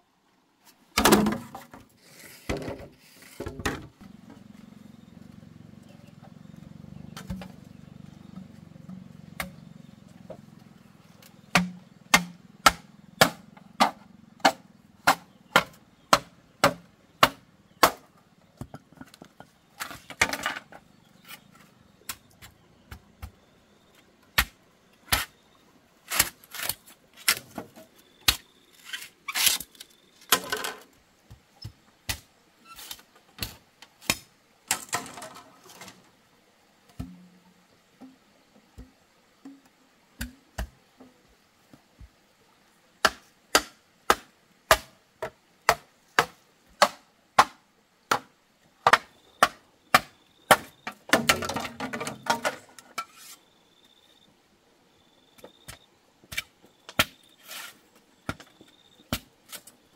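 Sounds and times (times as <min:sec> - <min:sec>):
machete chopping bamboo: 0:09.3 - 0:09.6, 0:11.2 - 0:18.1, 0:24.4 - 0:25.3, 0:26.1 - 0:27.6, 0:32.0 - 0:32.3, 0:33.4 - 0:34.9, 0:37.0 - 0:37.3, 0:43.0 - 0:52.5, 0:56.3 - 0:57.2.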